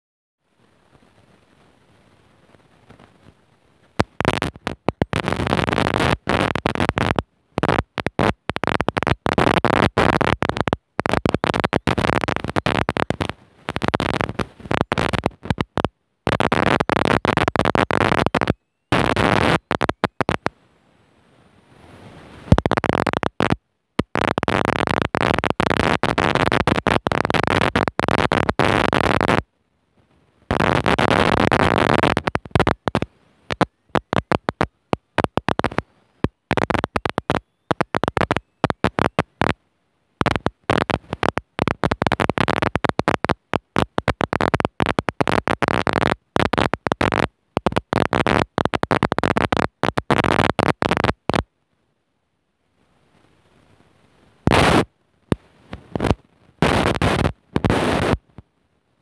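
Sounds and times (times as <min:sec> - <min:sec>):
static-like noise: 0:00.4 - 0:59.0.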